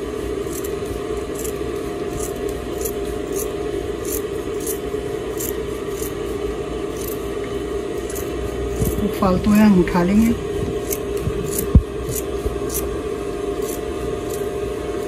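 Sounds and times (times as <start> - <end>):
steady low hum: 0.0 - 15.0
scissors snipping fabric: 0.4 - 6.2, 6.9 - 7.2, 8.0 - 9.2, 10.7 - 12.9, 13.6 - 14.5.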